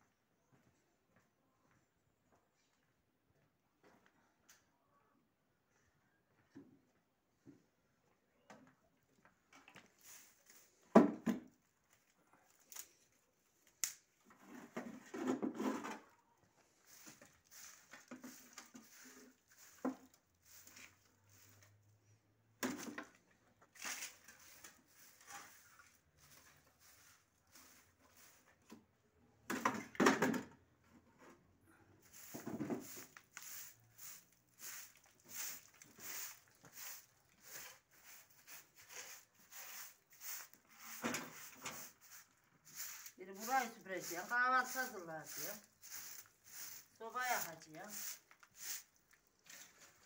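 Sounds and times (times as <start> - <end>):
broom sweeping concrete floor: 9.7 - 11.6, 14.3 - 28.8, 31.8 - 50.0
broom knocks: 32.2 - 33.2.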